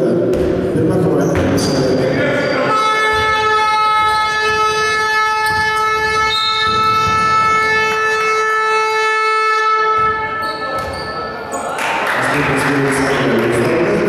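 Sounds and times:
arena buzzer long tone: 2.6s - 10.6s.

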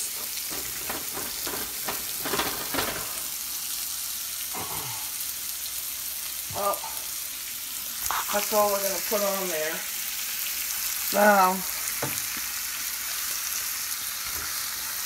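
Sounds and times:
oil popping and crackling: 0.0s - 5.6s
food sizzling in a pan: 0.0s - 15.0s.

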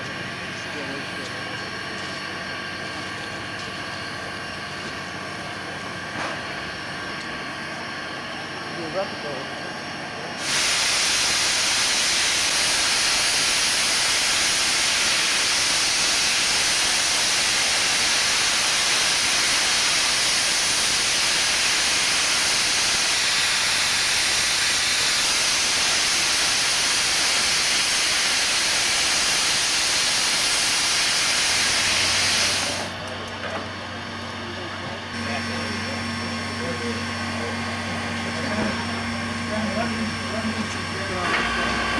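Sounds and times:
steam hissing: 10.3s - 33.0s.

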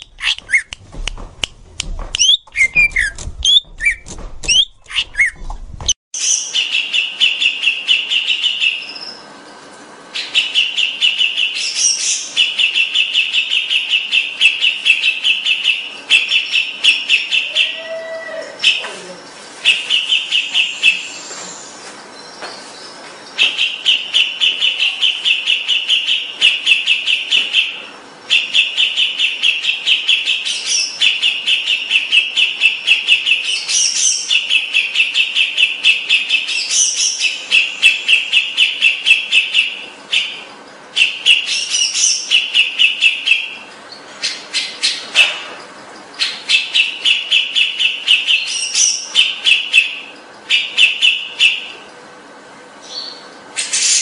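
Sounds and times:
bird singing chattering notes: 0.0s - 0.8s, 2.2s - 5.4s, 10.1s - 17.8s, 19.6s - 45.1s, 45.7s - 52.0s
bird whistled notes: 0.2s - 0.7s, 2.2s - 5.4s.

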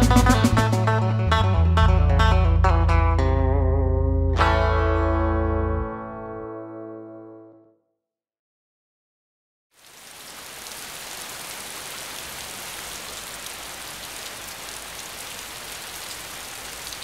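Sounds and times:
steady rain hiss: 9.8s - 17.0s.

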